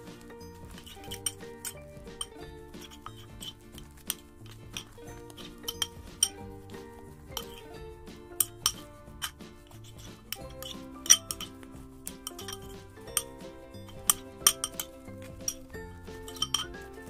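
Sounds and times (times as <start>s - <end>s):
light background music: 0.0s - 17.0s
spoon clinking against bowl: 12.2s - 16.8s.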